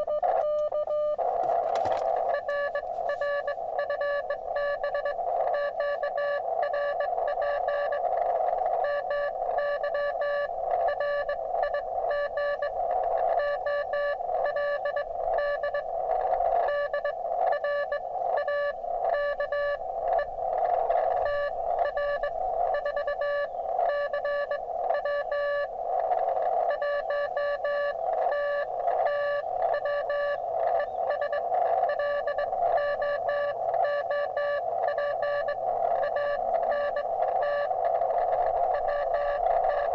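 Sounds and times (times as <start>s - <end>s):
morse code tone: 0.0s - 39.9s
radio receiver hiss: 0.0s - 39.9s.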